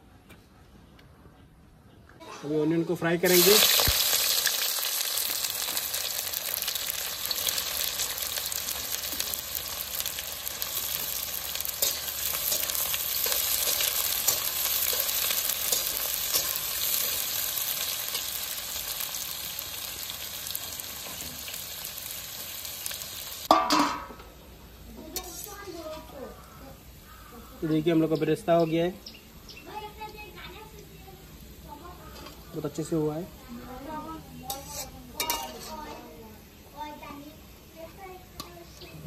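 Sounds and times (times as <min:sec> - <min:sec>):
onions sizzling in hot oil: 0:02.6 - 0:39.0
metal spatula scraping pan: 0:25.2 - 0:26.0, 0:34.5 - 0:36.1.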